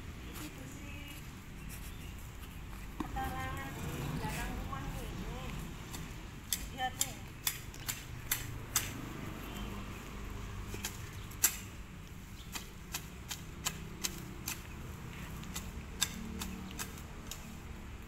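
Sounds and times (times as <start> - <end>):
sickle chopping soil: 5.9 - 9.1, 10.6 - 11.8, 12.4 - 17.6.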